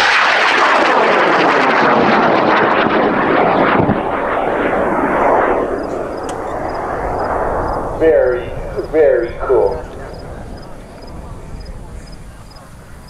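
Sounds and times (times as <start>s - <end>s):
rocket motor roaring: 4.9s - 13.0s.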